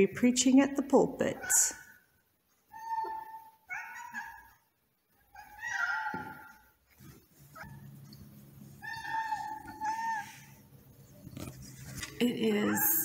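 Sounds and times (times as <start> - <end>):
cat meowing: 8.8 - 10.5.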